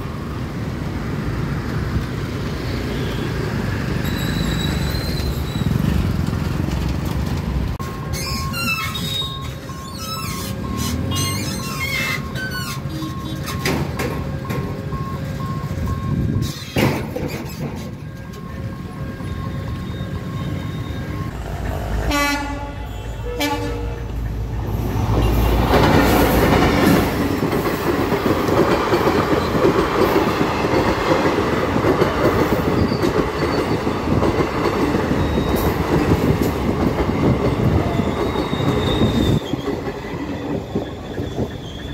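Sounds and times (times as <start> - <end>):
train coaches clattering on rails: 3.5 - 41.9
locomotive rumble passing: 17.5 - 41.9
locomotive horn blast: 22.1 - 24.1.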